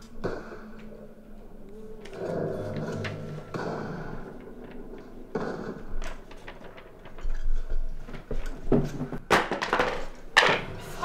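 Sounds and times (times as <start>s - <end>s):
paper clicks and knocks: 2.0s - 10.7s
paper rustling: 4.1s - 9.4s.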